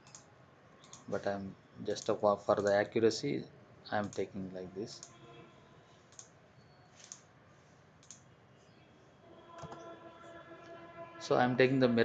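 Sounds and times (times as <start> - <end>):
computer mouse clicks: 0.0 - 1.1, 4.0 - 4.3, 6.1 - 6.4, 7.0 - 7.3, 8.0 - 8.3, 9.6 - 9.8.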